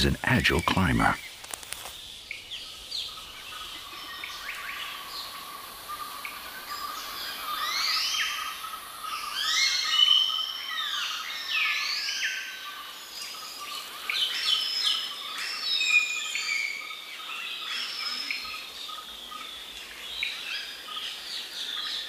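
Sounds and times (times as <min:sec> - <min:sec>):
birds singing: 0:00.0 - 0:22.0.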